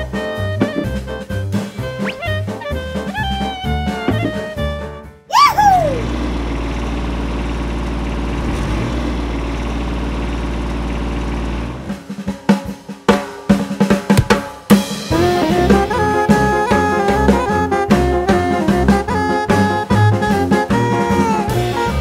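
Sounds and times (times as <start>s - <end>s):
jazzy music: 0.0s - 5.8s, 14.2s - 22.0s
whistle glide: 1.7s - 2.8s
snare drum roll: 12.0s - 18.9s
drum hits: 12.2s - 16.3s.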